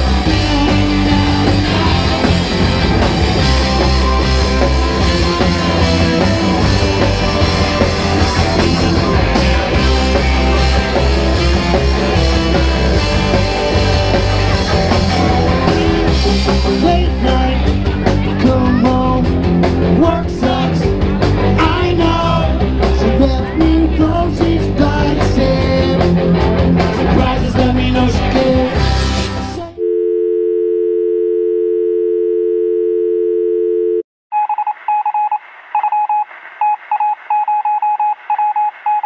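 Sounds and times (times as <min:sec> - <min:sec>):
reggae band playing: 0:00.0 - 0:29.6
telephone dial tone: 0:29.8 - 0:39.0
short electronic beeps: 0:34.3 - 0:39.0.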